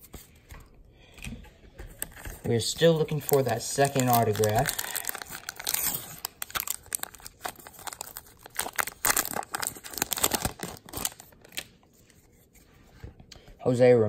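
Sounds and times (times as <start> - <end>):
plastic wrapper crinkling: 2.0 - 11.9.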